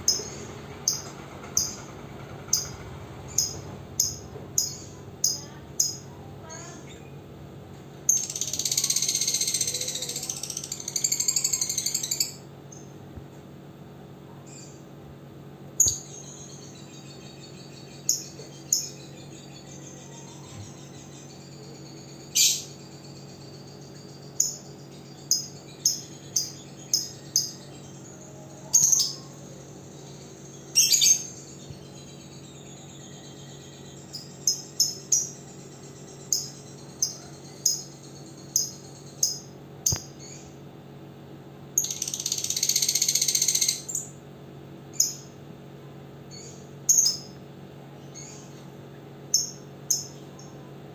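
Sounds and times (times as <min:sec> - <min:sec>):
shrill bird chattering: 0:08.1 - 0:12.4, 0:15.8 - 0:35.6.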